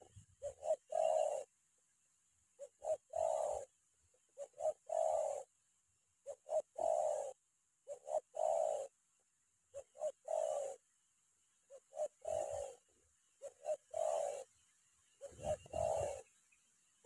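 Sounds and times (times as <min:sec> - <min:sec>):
dove cooing: 0:00.0 - 0:01.6, 0:02.5 - 0:05.6, 0:06.2 - 0:09.1, 0:09.7 - 0:10.9, 0:11.6 - 0:16.4.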